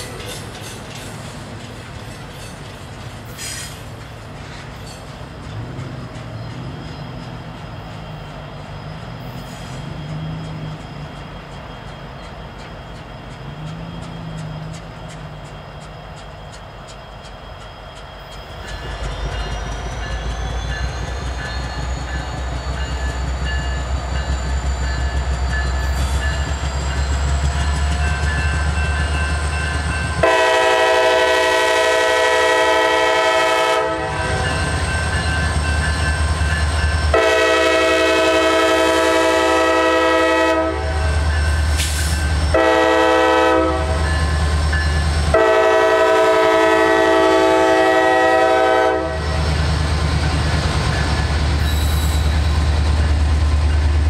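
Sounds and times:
diesel locomotive engines: 0.0s - 54.0s
locomotive air horn blasts: 30.2s - 34.5s, 37.1s - 41.2s, 42.5s - 44.1s, 45.3s - 49.4s.

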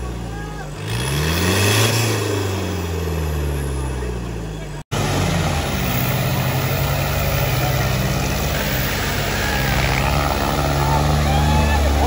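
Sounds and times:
tractor diesel engine running: 2.9s - 12.0s.

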